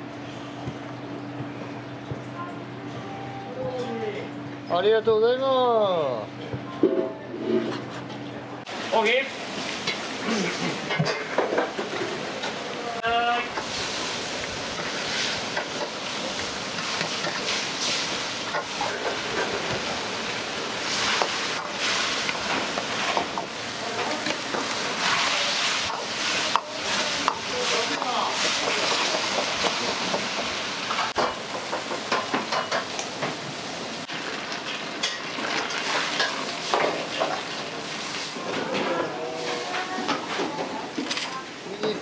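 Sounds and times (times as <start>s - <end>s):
food sizzling in a wok: 8.7s - 40.9s.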